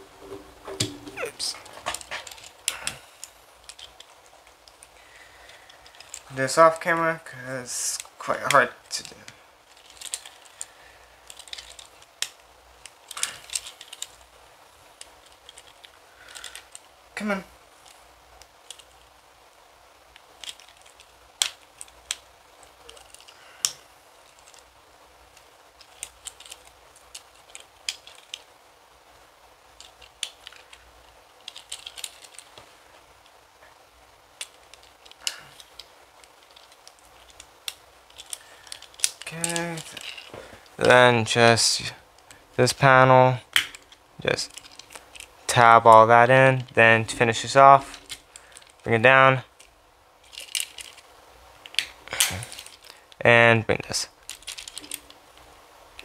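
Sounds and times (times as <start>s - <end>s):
plastic toy parts clicking: 1.9s - 4.9s, 5.8s - 6.3s, 9.7s - 10.6s, 11.2s - 14.3s, 15.0s - 16.9s, 17.8s - 19.0s, 20.1s - 22.3s, 22.9s - 24.7s, 25.3s - 28.5s, 29.8s - 30.8s, 31.4s - 32.6s, 34.4s - 40.4s, 43.5s - 45.3s, 49.5s - 51.0s, 51.6s - 53.2s, 54.2s - 55.2s.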